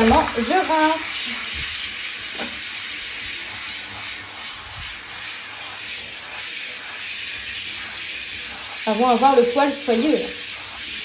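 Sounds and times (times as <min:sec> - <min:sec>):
shower head spraying water: 0:00.0 - 0:11.0.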